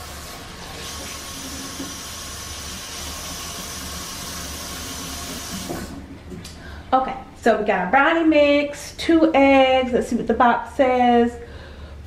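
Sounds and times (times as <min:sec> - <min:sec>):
tap water running: 0:00.0 - 0:06.5.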